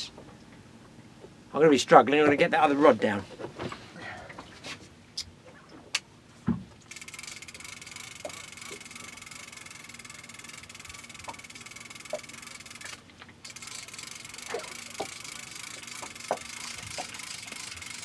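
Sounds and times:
fishing reel ratchet clicking: 0:06.9 - 0:18.0.

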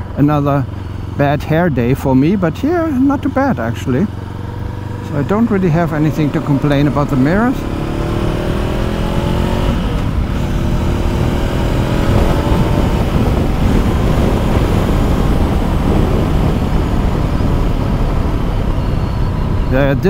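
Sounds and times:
motorcycle engine accelerating: 0:00.0 - 0:20.0
wind noise: 0:04.6 - 0:20.0.

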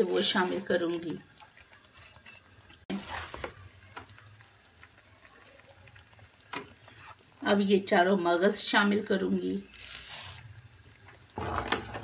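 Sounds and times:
wooden spoon scraping a pan: 0:01.8 - 0:03.6, 0:06.6 - 0:07.3.

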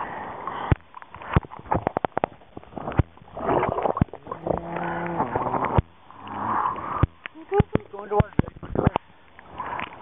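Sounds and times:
water knocking against camera: 0:00.7 - 0:05.9, 0:07.0 - 0:09.0
short pitched hum: 0:02.7 - 0:07.9.

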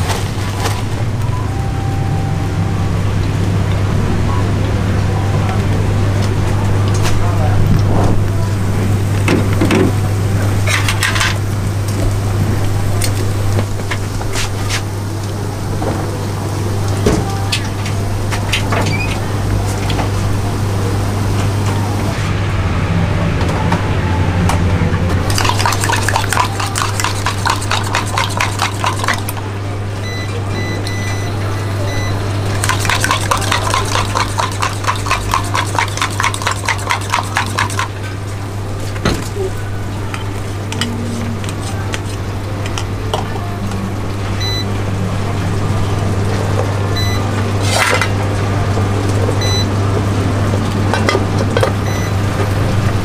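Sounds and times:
oil bubbling in deep fryer: 0:00.0 - 0:22.9, 0:25.2 - 0:53.0
eggs beaten with metal utensil: 0:25.3 - 0:29.3, 0:32.6 - 0:37.9.

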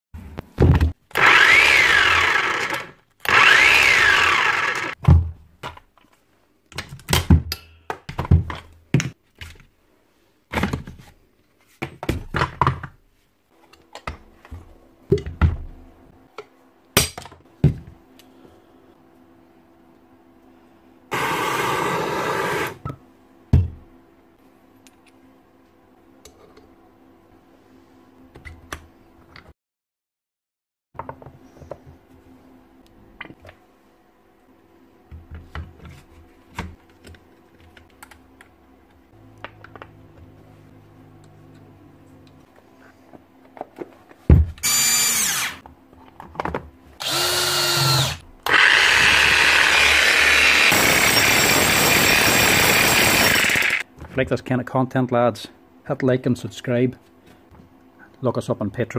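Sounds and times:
demolition hammer motor whining: 0:01.1 - 0:05.0, 0:21.1 - 0:22.8, 0:47.0 - 0:53.8.

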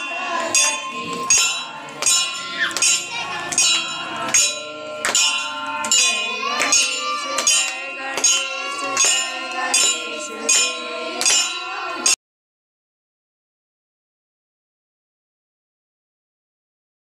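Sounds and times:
brass bells ringing: 0:00.0 - 0:12.2
women singing: 0:00.0 - 0:12.2
hands clapping: 0:00.1 - 0:12.0.

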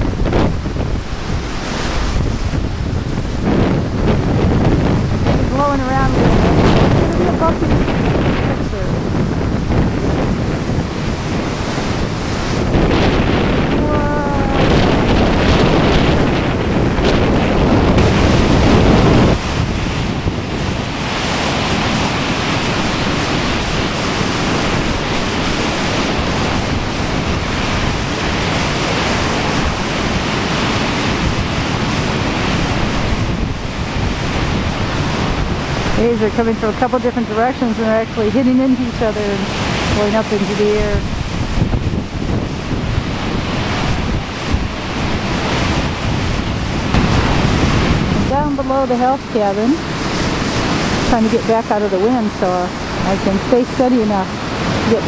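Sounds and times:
waves crashing on beach: 0:00.0 - 0:55.0
wind buffeting microphone: 0:00.0 - 0:55.0
low rumble: 0:02.2 - 0:21.2, 0:30.1 - 0:55.0.

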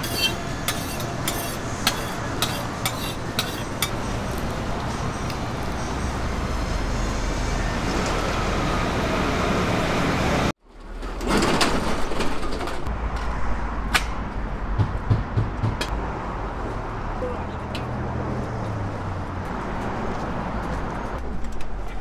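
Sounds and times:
low rumble and hubbub: 0:12.6 - 0:22.0.

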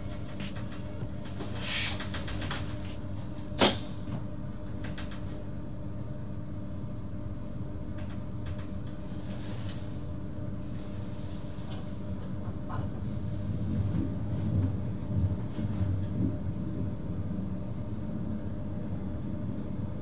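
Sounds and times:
electric train hum: 0:00.0 - 0:20.0.

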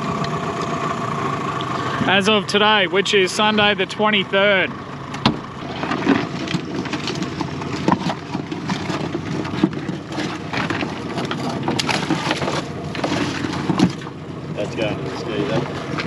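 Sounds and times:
outboard motor idling: 0:00.0 - 0:16.0
knocks and clatter: 0:05.1 - 0:14.2.

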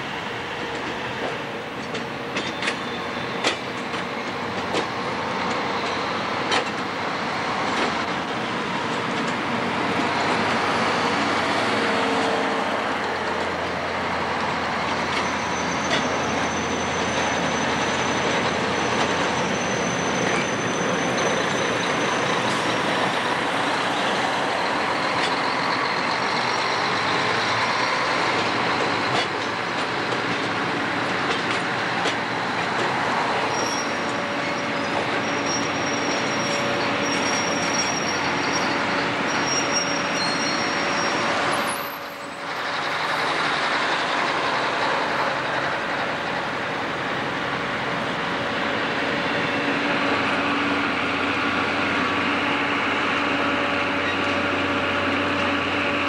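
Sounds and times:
train rumbling and rattling: 0:00.0 - 0:56.0
high-pitched squeals: 0:33.3 - 0:43.0.

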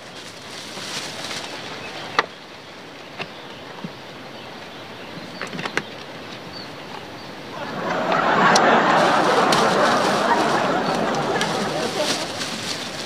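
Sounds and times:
plastic bag rustling: 0:00.0 - 0:02.1, 0:07.6 - 0:13.0
background hiss: 0:00.0 - 0:13.0.

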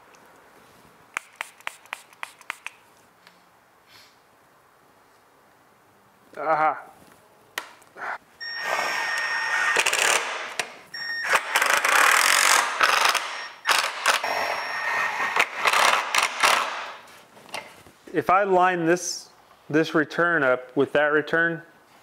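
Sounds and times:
cordless drill driving screws into wood: 0:08.6 - 0:17.0.

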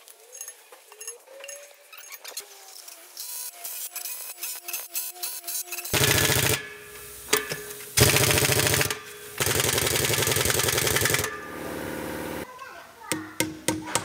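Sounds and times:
impact wrench hammering: 0:05.9 - 0:11.5, 0:13.1 - 0:14.0.

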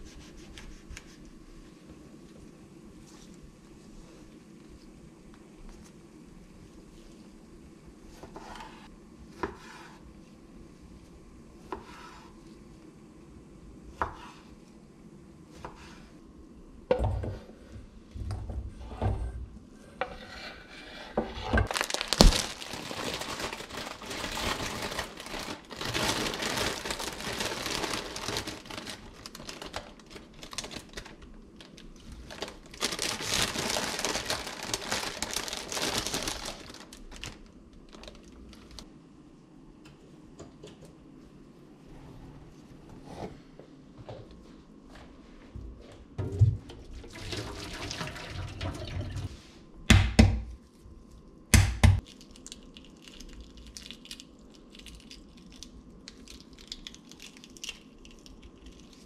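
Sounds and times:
plastic bag crinkling: 0:21.7 - 0:38.9.

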